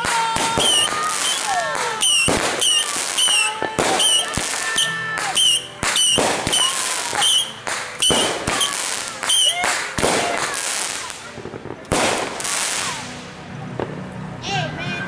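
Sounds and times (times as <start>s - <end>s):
firework whistles: 0.0s - 11.2s
fireworks bangs: 0.0s - 14.0s.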